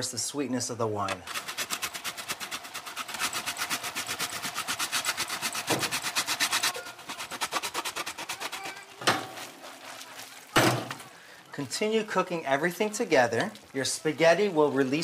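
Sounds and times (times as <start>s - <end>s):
cheese grating strokes: 1.3s - 10.5s.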